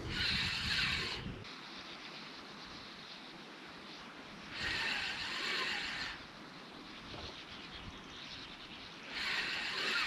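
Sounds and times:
spinning reel cranking: 0:00.0 - 0:01.3, 0:04.6 - 0:06.2, 0:09.1 - 0:10.0.

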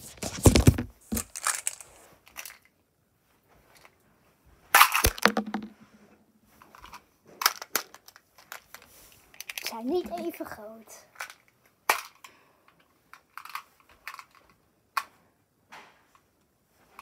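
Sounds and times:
plastic wrapper crinkling: 0:00.3 - 0:02.6.

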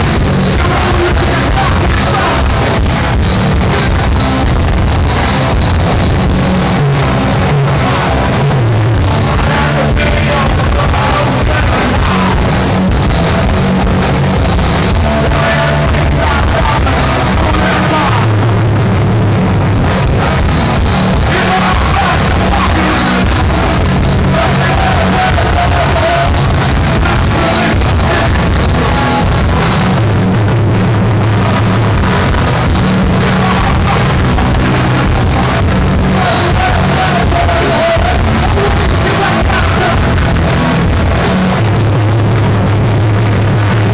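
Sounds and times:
bass guitar: 0:00.0 - 0:43.9
drums: 0:00.0 - 0:43.9
electric guitar: 0:00.0 - 0:43.9.

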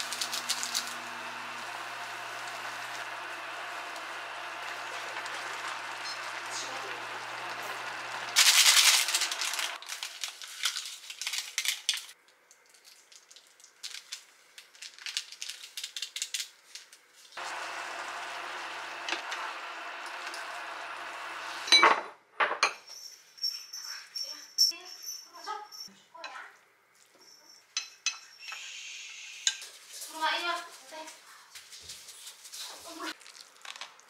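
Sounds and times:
noodles sizzling in saucepan: 0:00.0 - 0:10.7, 0:17.4 - 0:21.7.

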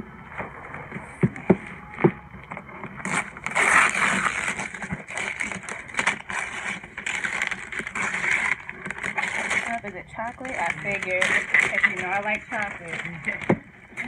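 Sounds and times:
wrapping paper tearing and crinkling: 0:03.0 - 0:14.0.

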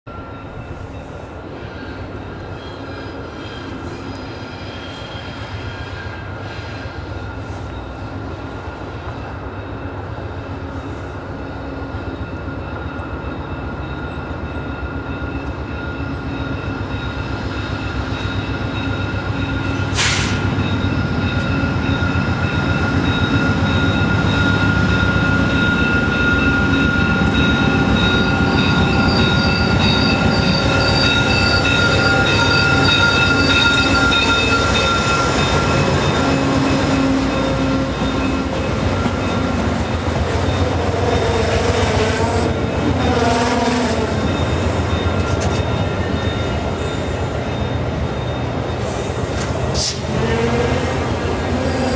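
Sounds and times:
diesel locomotive engine rumble: 0:00.1 - 0:51.9
high squeal of braking wheels: 0:00.8 - 0:08.1, 0:19.6 - 0:21.0, 0:27.0 - 0:39.5
brief sharp hiss: 0:20.0 - 0:20.4.

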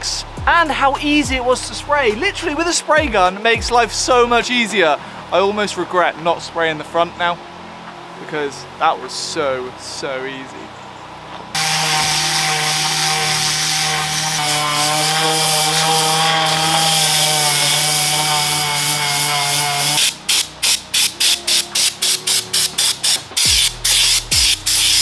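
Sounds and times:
aerosol spray can bursts: 0:11.6 - 0:25.0
orbital sander on metal: 0:11.6 - 0:25.0.

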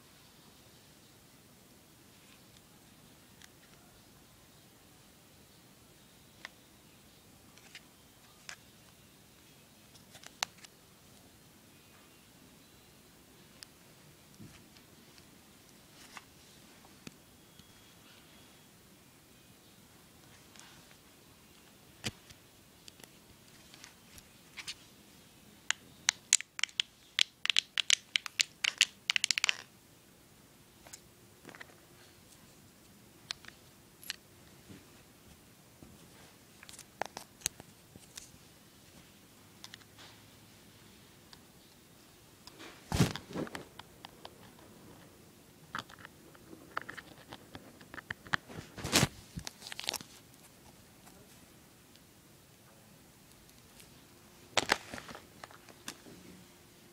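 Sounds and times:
handling noise clicks and taps: 0:26.1 - 0:29.6.

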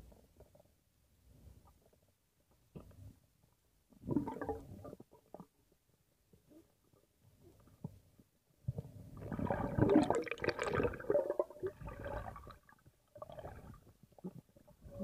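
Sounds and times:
underwater bubbling and gurgling: 0:03.9 - 0:05.7, 0:08.7 - 0:15.0.

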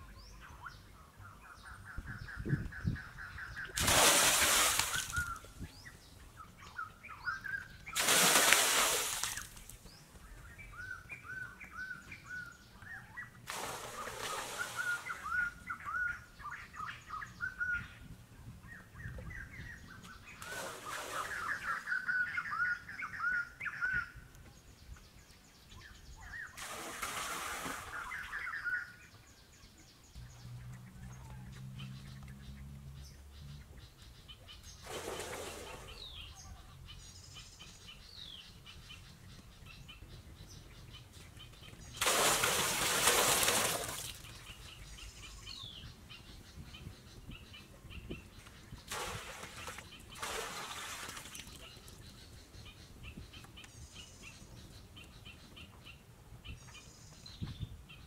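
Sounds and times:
small birds chirping: 0:00.0 - 0:58.0
water pouring and splashing: 0:03.8 - 0:05.4, 0:08.0 - 0:09.7, 0:13.5 - 0:15.4, 0:20.4 - 0:21.8, 0:26.6 - 0:28.2, 0:34.8 - 0:36.0, 0:42.0 - 0:44.4, 0:48.9 - 0:51.7.

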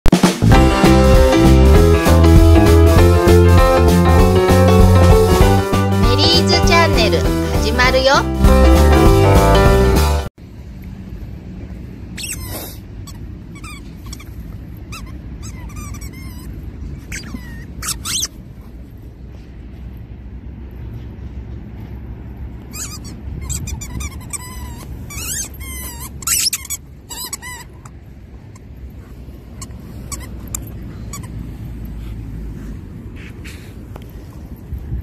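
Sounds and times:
dog whining: 0:12.2 - 0:18.4, 0:22.7 - 0:28.8, 0:29.4 - 0:32.2.

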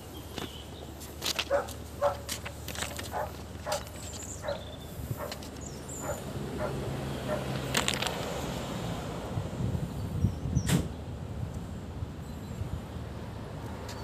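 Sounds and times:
dog barking: 0:01.5 - 0:02.3, 0:03.1 - 0:05.4, 0:06.0 - 0:07.6.

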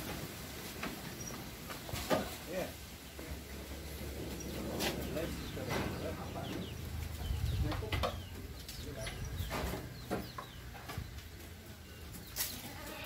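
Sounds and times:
birds chirping: 0:00.6 - 0:13.0.

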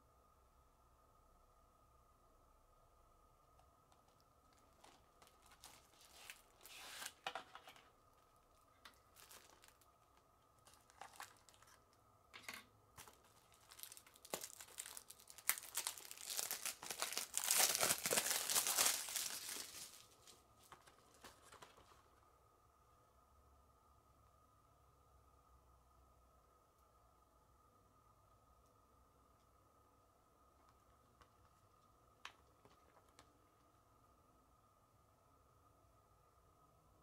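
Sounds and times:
packaging crackling and tearing: 0:04.6 - 0:07.9, 0:08.9 - 0:09.9, 0:10.6 - 0:11.8, 0:13.0 - 0:22.0.

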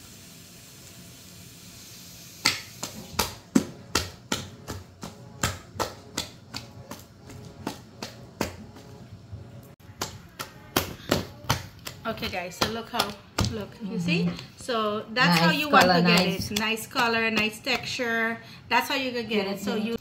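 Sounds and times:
hand slapping batter in bowl: 0:02.4 - 0:08.9, 0:09.8 - 0:14.5, 0:15.3 - 0:18.0.

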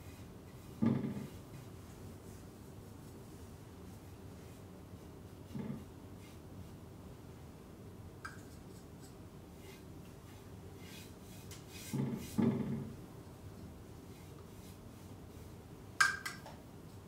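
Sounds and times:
brush strokes on wood: 0:00.0 - 0:06.9, 0:08.9 - 0:12.9, 0:14.0 - 0:15.7.

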